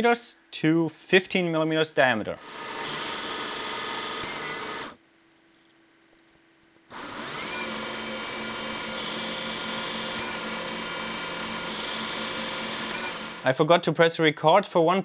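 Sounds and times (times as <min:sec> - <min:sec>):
metal lathe motor whine: 0:02.4 - 0:05.0, 0:06.9 - 0:13.5.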